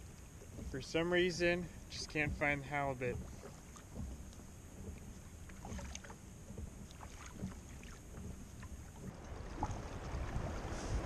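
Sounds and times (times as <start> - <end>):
low steady rumble: 0.0 - 11.0
water lapping against kayak hull: 0.0 - 11.0.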